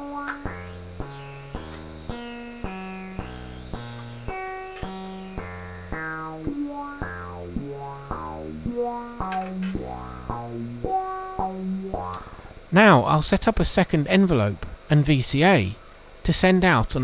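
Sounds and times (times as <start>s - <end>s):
sequenced synthesizer notes: 0.0s - 12.7s.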